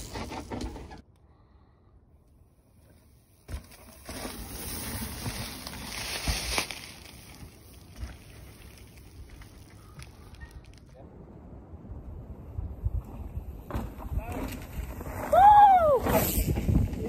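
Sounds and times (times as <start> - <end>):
bike tyres rolling on dirt: 2.2 - 11.0, 12.0 - 17.0
bike knocking over bumps: 3.4 - 8.5, 13.6 - 14.8
wind rushing over microphone: 11.1 - 17.0.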